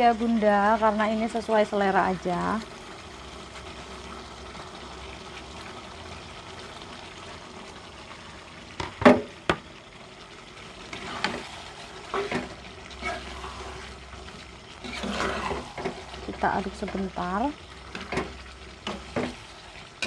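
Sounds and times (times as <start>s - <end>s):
sauce sizzling in a pan: 0.0s - 20.0s
spoon scraping a pan: 10.9s - 13.9s, 14.8s - 17.0s, 17.9s - 19.6s.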